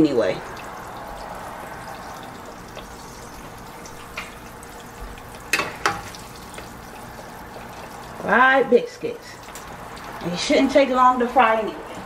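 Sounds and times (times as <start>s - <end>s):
dough frying in hot oil: 0.0s - 12.0s
metal utensil tapping a pan: 5.5s - 6.7s.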